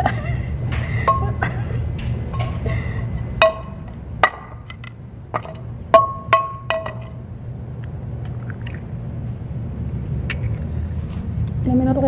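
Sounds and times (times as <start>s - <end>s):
egg knocking on frying pan: 0.7s - 7.2s.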